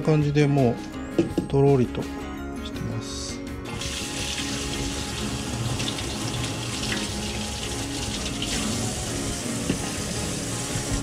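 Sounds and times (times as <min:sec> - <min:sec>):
tap water splashing: 0:03.9 - 0:10.0.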